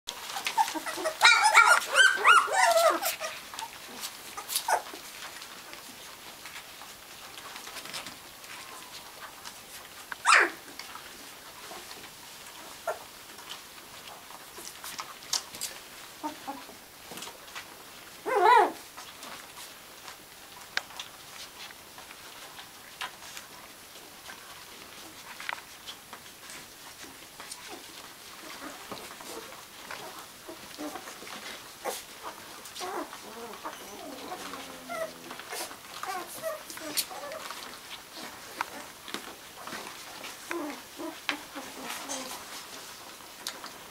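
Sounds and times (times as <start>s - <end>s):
puppies squeaking: 0.1s - 5.0s, 10.2s - 10.6s, 31.8s - 37.6s
puppy whining: 0.1s - 5.8s, 10.2s - 10.8s, 11.6s - 13.6s, 16.2s - 16.8s, 18.2s - 19.2s, 27.4s - 42.9s
puppy wavering cry: 0.2s - 3.8s, 10.2s - 10.6s, 18.2s - 18.8s, 32.8s - 37.5s.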